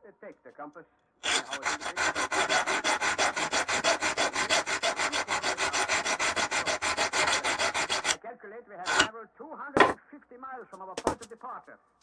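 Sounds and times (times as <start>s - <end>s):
steel tool sanded by hand: 1.2s - 8.2s, 8.9s - 9.1s.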